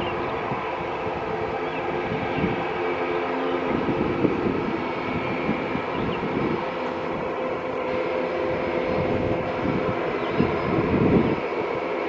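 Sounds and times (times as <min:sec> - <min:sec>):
turboprop engines droning: 0:00.0 - 0:12.0.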